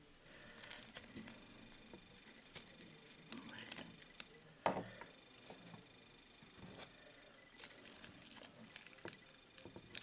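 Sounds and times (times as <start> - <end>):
plastic strip crinkling: 0.3 - 4.4, 7.6 - 10.0.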